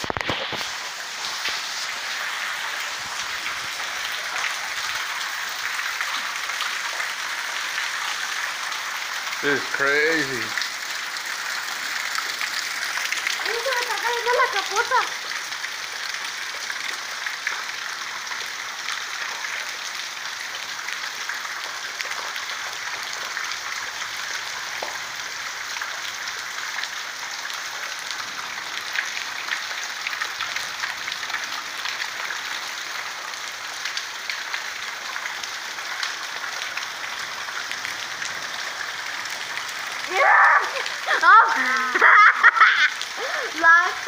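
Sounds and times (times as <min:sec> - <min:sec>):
heavy rain pattering: 0:00.0 - 0:44.0.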